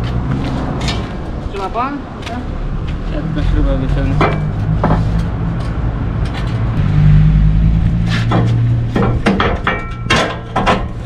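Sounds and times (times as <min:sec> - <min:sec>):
metal knocks and clanks: 0:04.1 - 0:06.7, 0:08.2 - 0:11.0.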